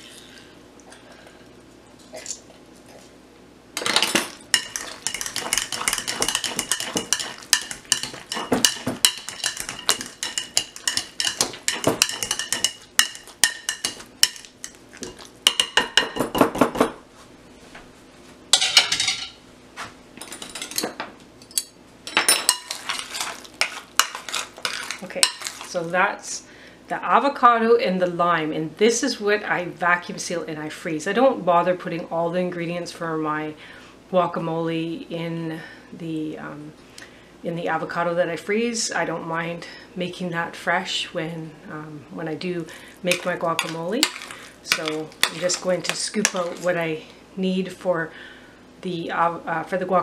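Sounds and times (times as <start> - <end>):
utensils clinking and scraping glass bowl: 3.8 - 15.8, 21.5 - 25.9, 42.5 - 46.9.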